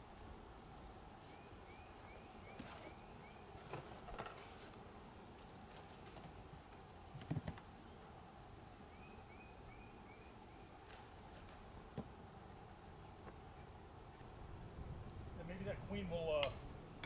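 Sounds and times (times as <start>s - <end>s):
knocks of wooden hive boxes: 6.0s - 7.7s.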